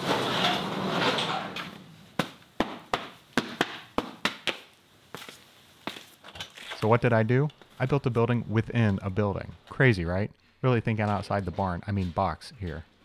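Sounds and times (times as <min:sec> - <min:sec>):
barn door scraping open: 0:00.0 - 0:01.9
boots on gritty concrete: 0:05.1 - 0:06.8.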